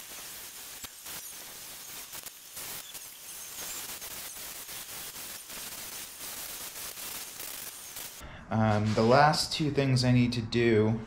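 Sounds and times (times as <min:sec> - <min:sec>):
drill boring through metal: 0:00.0 - 0:08.2.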